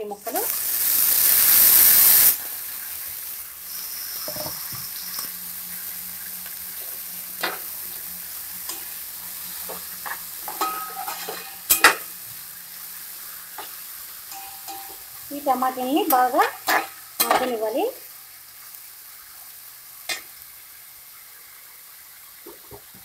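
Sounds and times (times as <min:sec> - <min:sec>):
vegetables sizzling in oil: 0:00.0 - 0:23.0
spatula scraping a metal pan: 0:09.7 - 0:12.1.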